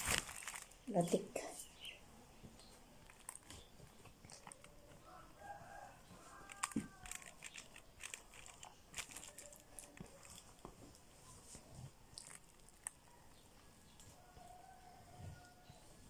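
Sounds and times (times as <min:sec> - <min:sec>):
rooster crowing: 0:04.9 - 0:07.4, 0:14.2 - 0:16.0.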